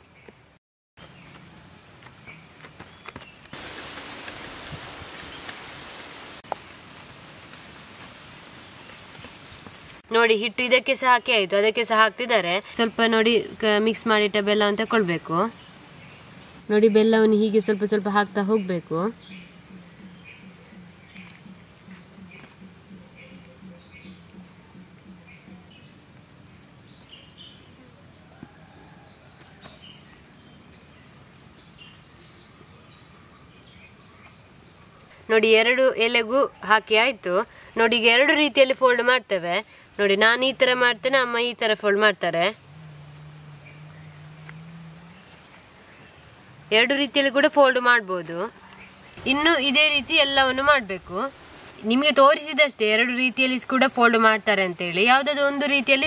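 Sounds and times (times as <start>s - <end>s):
rain falling: 3.5s - 10.0s, 49.0s - 54.0s
bird chirps: 17.6s - 27.9s
high-pitched insect drone: 42.5s - 45.8s
faint ticks: 42.8s - 45.6s.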